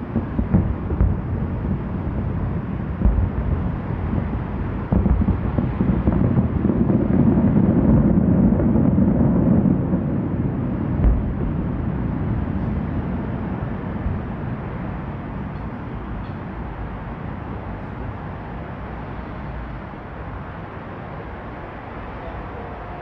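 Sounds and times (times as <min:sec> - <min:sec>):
distant firework booms rumbling: 0:00.0 - 0:17.0
sharp firework bang: 0:02.9 - 0:10.0, 0:11.0 - 0:12.9
firework thump: 0:03.0 - 0:06.9, 0:11.0 - 0:11.8.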